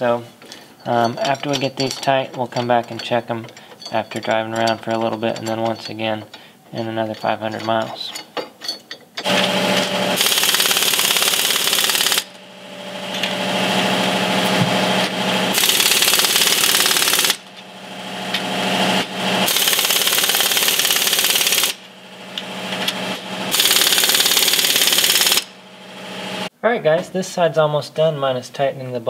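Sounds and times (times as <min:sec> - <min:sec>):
impact wrench whirring and hammering: 0:09.2 - 0:26.5.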